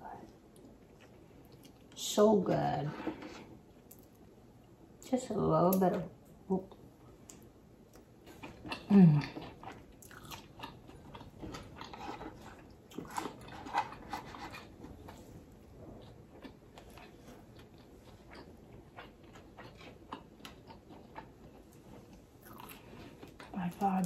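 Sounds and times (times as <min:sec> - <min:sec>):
chewing and lip smacking: 0:07.9 - 0:14.7.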